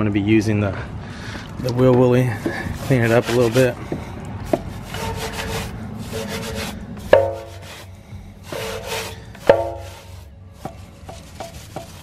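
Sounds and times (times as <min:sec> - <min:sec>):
brush scrubbing wheel: 0:01.7 - 0:12.0
sharp ringing knocks: 0:07.1 - 0:07.5, 0:09.4 - 0:09.9.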